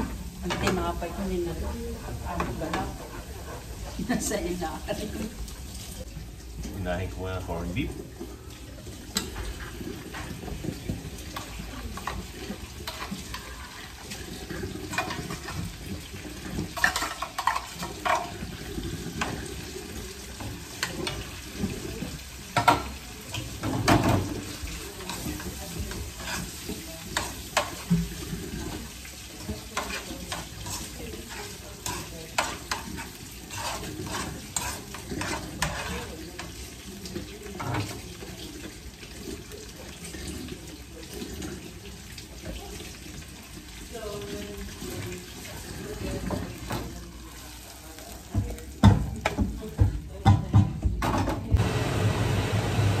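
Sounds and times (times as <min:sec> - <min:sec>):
meat sizzling in pan: 0:00.0 - 0:50.2
utensil scraping and tapping pan: 0:29.4 - 0:36.2.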